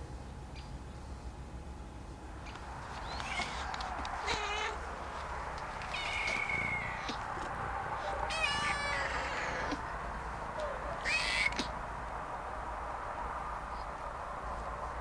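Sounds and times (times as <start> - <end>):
steady low hum: 0.0 - 15.0
cat meowing: 3.1 - 4.8, 5.8 - 7.2, 8.3 - 9.8, 10.6 - 11.7
kitten meowing: 3.1 - 4.8, 5.8 - 7.2, 8.3 - 9.8, 10.6 - 11.7.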